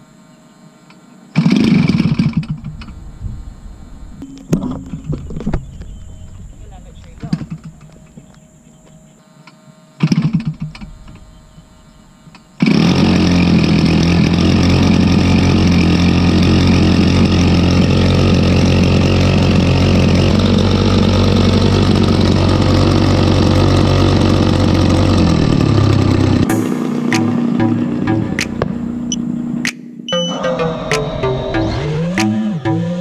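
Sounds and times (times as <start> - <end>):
model plane piston engine: 1.4 - 2.9, 12.3 - 26.6.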